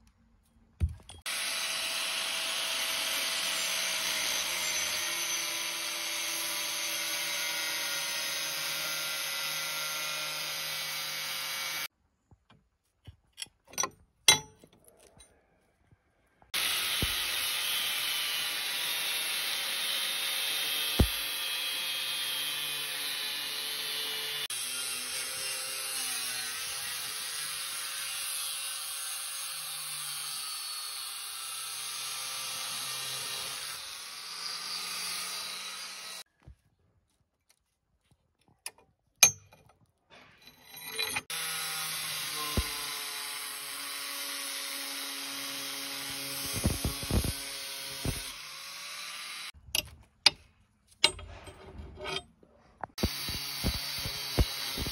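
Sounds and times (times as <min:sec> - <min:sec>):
angle grinder cutting steel: 0:01.2 - 0:11.9, 0:16.5 - 0:36.3, 0:40.4 - 0:49.6, 0:52.9 - 0:54.9.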